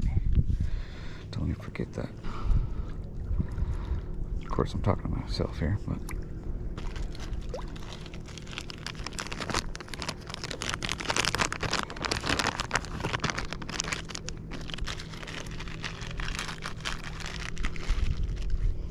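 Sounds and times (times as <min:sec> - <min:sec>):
plastic bag crinkling: 0:06.8 - 0:18.6.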